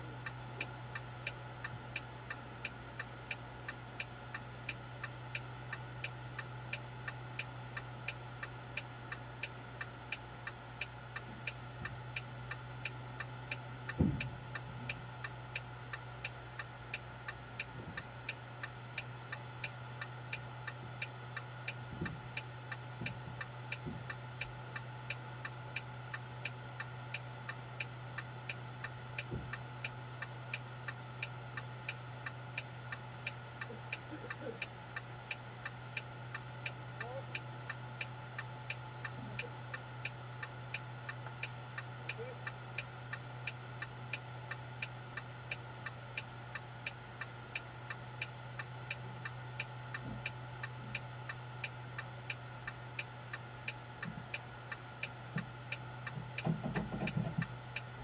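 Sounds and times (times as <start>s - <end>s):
low steady hum: 0.0s - 58.0s
turn signal flasher ticking: 0.0s - 58.0s
thump: 14.0s - 14.3s.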